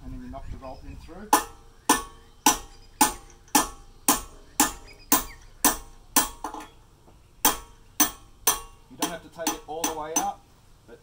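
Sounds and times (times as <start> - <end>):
hammer striking metal punch: 1.3 - 6.8, 7.4 - 10.4.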